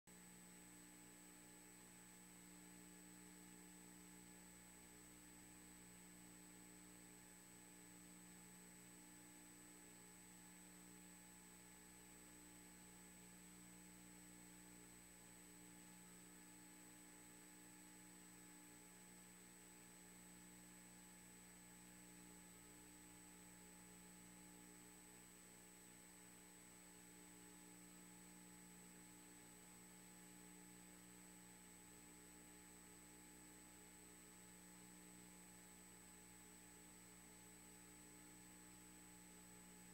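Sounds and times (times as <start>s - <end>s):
faint electrical hum with whine: 0.1s - 39.9s.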